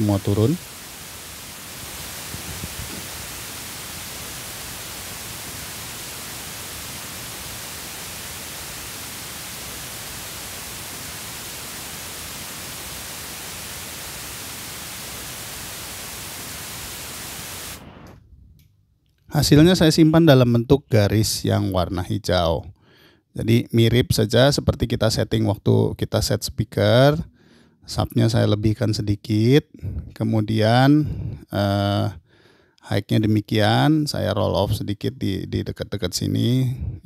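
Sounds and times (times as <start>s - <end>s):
pink noise hiss: 0.0s - 18.2s.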